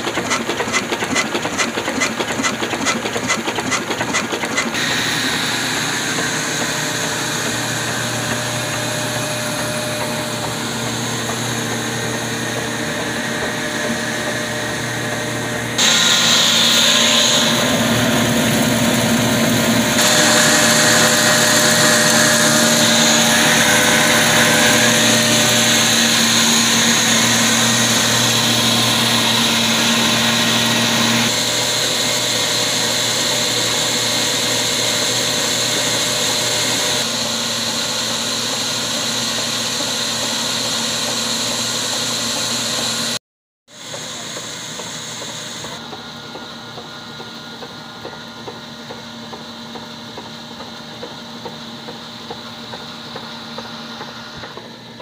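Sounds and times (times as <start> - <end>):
flour mill grinding: 18.2 - 31.7.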